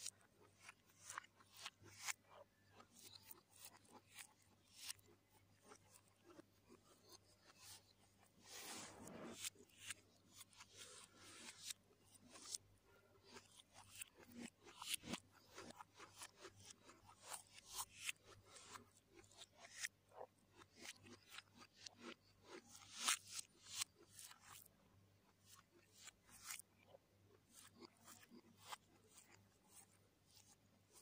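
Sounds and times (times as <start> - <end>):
fingers working through rice: 0.0 - 24.7, 25.3 - 31.0
chewing and lip smacking: 0.1 - 6.7.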